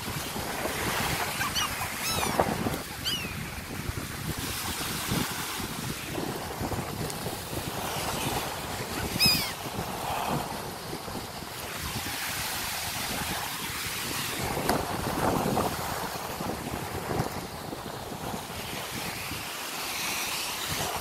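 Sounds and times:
wind on microphone: 0.0s - 21.0s
gulls crying: 1.1s - 3.5s, 9.0s - 9.6s.

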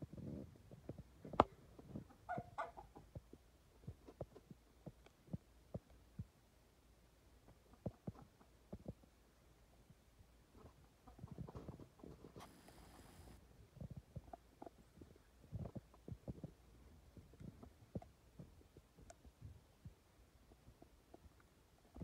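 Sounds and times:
faint clicks and taps: 3.1s - 6.4s, 13.8s - 22.0s.

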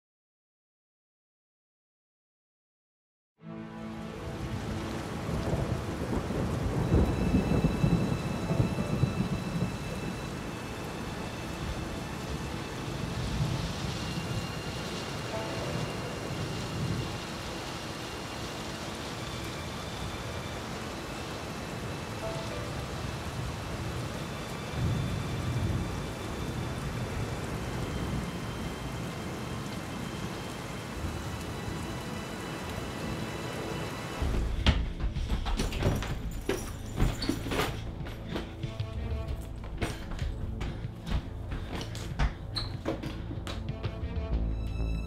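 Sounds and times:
steady rain: 3.5s - 44.2s
rumble of thunder: 4.4s - 17.7s, 21.4s - 32.0s.

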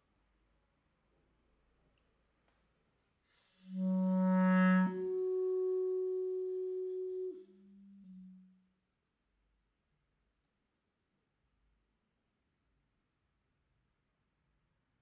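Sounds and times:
held instrument notes: 3.7s - 8.6s.

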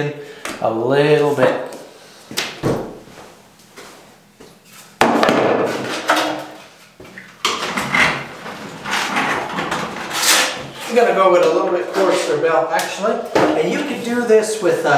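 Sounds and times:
knocks and rustling: 5.0s - 10.8s.

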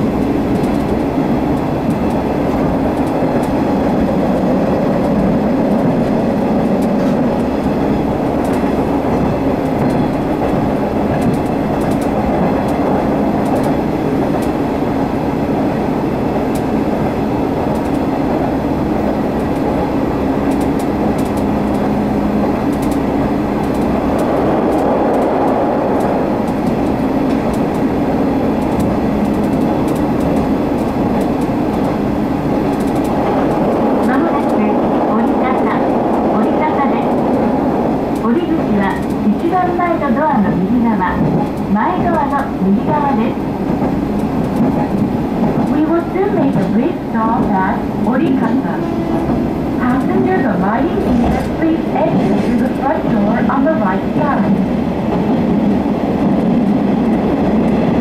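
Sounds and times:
railcar engine drone: 0.0s - 58.0s
wheels on rails: 0.0s - 58.0s
clicks from the track: 9.6s - 14.6s, 17.7s - 18.1s, 20.4s - 21.8s, 22.6s - 27.9s, 28.6s - 32.0s, 32.6s - 37.5s, 38.1s - 40.3s.

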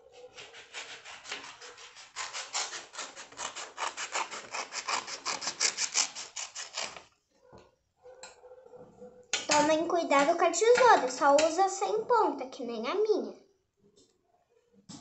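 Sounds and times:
scissors snipping paper: 0.3s - 7.1s.

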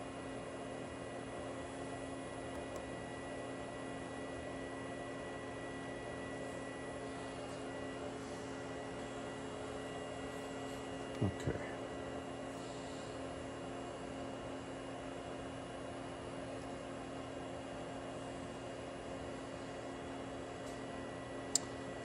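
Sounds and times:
electrical hum: 0.0s - 22.0s.

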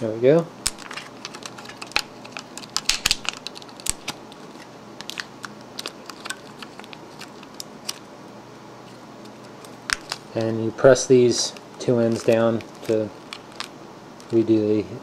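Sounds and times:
hands handling hard drive: 0.7s - 8.1s, 11.5s - 14.5s.

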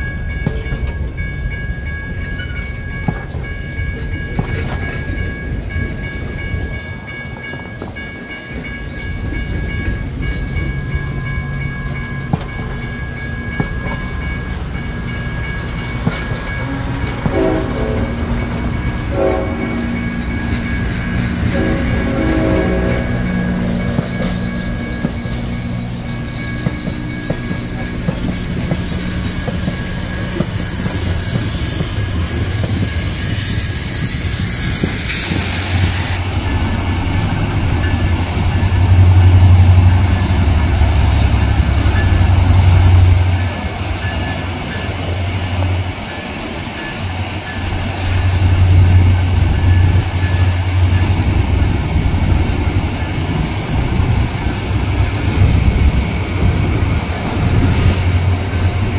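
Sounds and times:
diesel locomotives rumbling: 0.0s - 58.9s
steam locomotive hissing: 12.5s - 58.9s.

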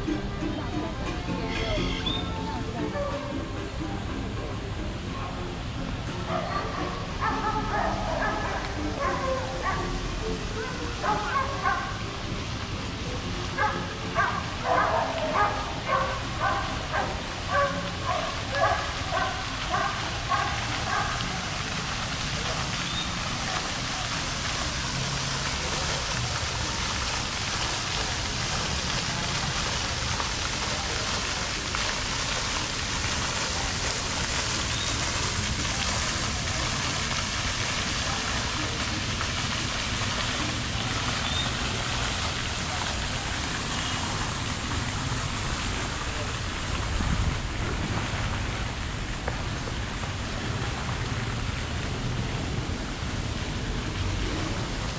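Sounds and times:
dog barking: 6.3s - 10.0s, 10.6s - 12.0s, 13.6s - 21.4s
steady rushing hiss: 6.8s - 51.2s.

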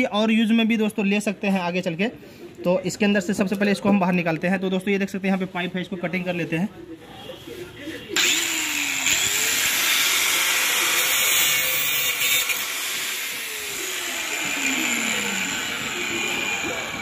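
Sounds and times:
angle grinder cutting pipe: 8.2s - 17.0s.

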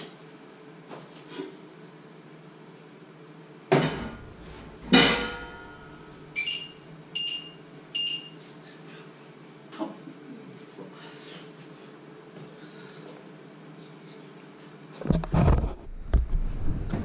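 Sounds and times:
metal clang: 3.7s - 6.1s
short electronic beeps: 6.4s - 8.4s.

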